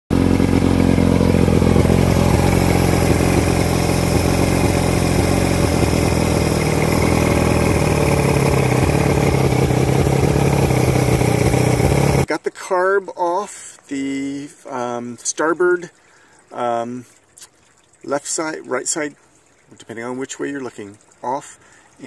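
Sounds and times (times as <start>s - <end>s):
outboard motor idling: 0.1s - 12.3s.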